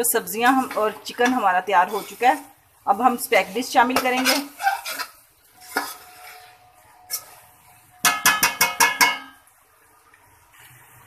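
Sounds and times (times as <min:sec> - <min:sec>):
spatula tapping metal pan: 0:08.0 - 0:09.4.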